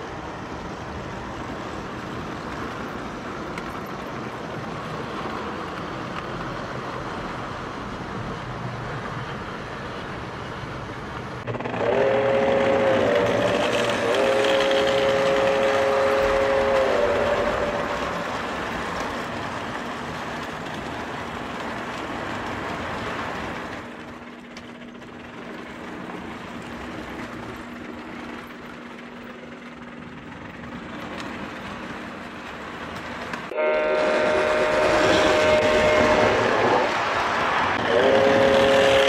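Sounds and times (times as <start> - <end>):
train whistle blast: 11.7 - 18.2, 33.5 - 37.0, 37.8 - 39.0
toy train clattering on track: 12.5 - 33.5.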